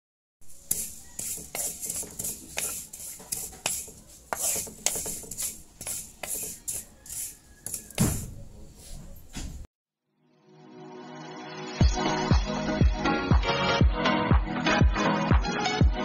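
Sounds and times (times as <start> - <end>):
wooden spatula scraping a pan: 0.4 - 9.1
seeds hissing and rattling: 0.5 - 7.9.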